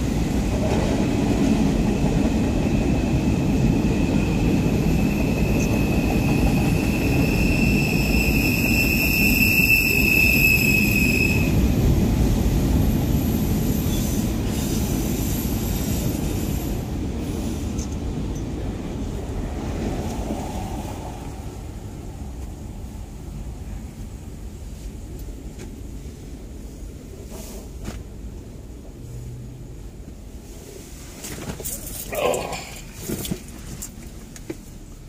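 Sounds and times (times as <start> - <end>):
train wheels rumbling on rails: 0.0 - 35.0
high-pitched wheel squeal: 4.7 - 11.6.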